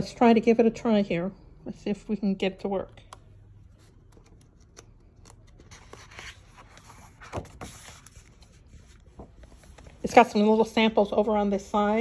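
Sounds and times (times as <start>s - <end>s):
paper pages rustling: 3.6s - 10.5s.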